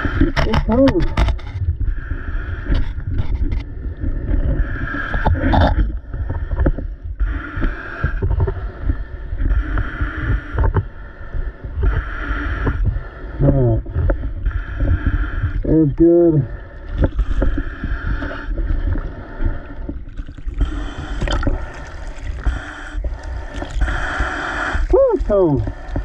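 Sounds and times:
diver breathing: 0.0s - 26.0s
water sloshing and slapping: 16.7s - 26.0s.

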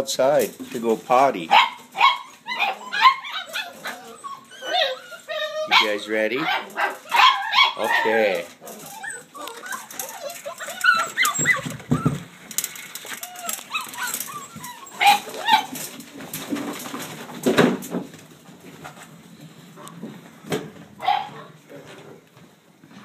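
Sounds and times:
puppies yelping: 1.5s - 16.2s, 21.0s - 21.6s
puppies whining and yipping: 1.6s - 16.2s.

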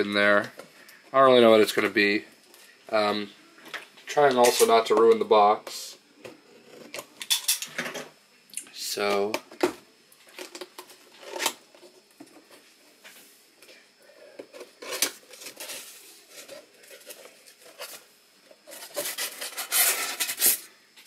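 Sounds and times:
styrofoam rubbing and scraping: 14.6s - 20.7s.

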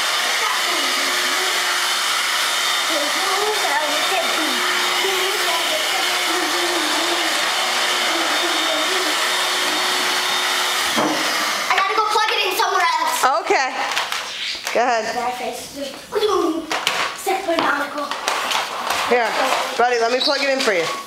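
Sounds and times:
vacuum cleaner running: 0.0s - 13.4s.

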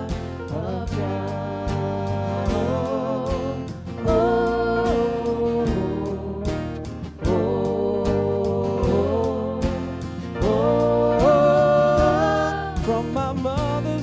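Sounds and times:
person singing long notes: 0.0s - 13.4s
guitar accompaniment: 0.0s - 14.0s.

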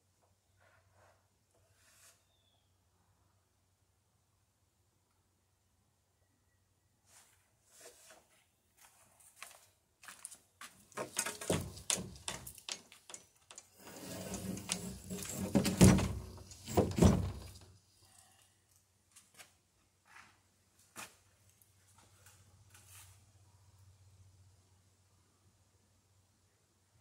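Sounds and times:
wooden planks knocking: 11.0s - 13.2s, 13.9s - 17.6s
planks sliding scrape: 13.7s - 17.6s.

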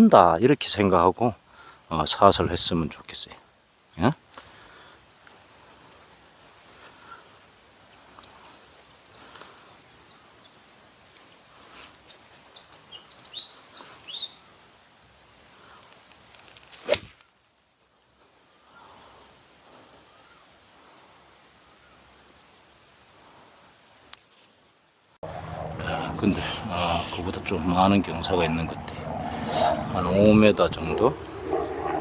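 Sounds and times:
birds chirping: 5.6s - 16.5s, 19.8s - 23.0s, 25.2s - 32.0s
golf club striking ball: 16.9s - 17.1s.

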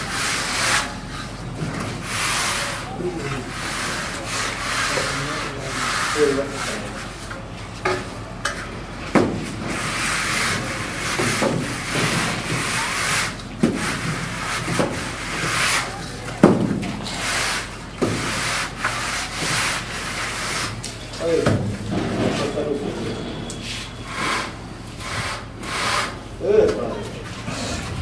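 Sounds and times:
wooden edge scraping wet cement: 9.4s - 20.9s, 24.1s - 26.2s.

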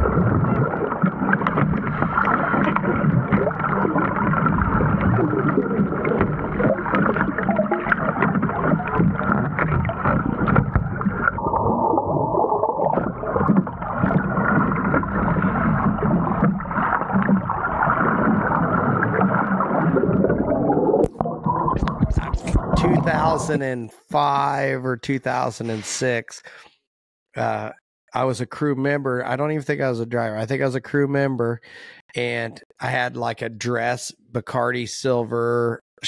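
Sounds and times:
underwater bubbles churning: 0.0s - 23.7s.

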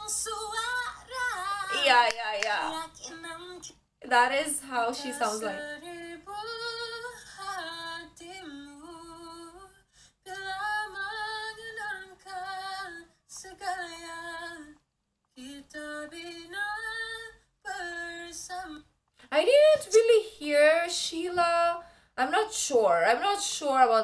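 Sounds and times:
boy singing in high voice: 0.0s - 3.7s, 4.9s - 8.6s.

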